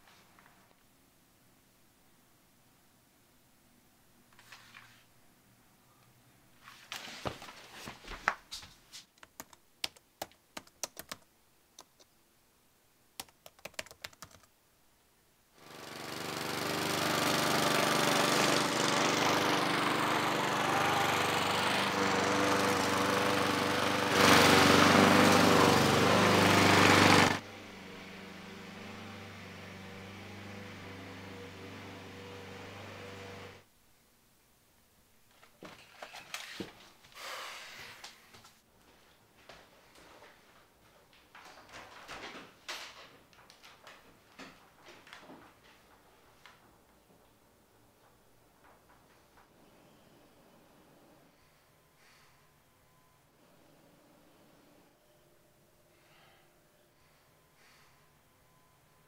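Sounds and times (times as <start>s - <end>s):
laptop keyboard typing clicks: 9.2s - 12.1s, 13.2s - 14.5s
lawn mower engine running: 15.6s - 33.6s.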